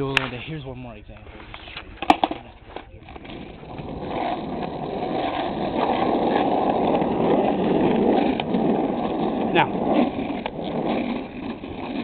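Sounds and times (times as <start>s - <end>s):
skateboard wheels rolling on asphalt: 0.0s - 12.0s
light knocks of skateboard: 1.5s - 3.3s.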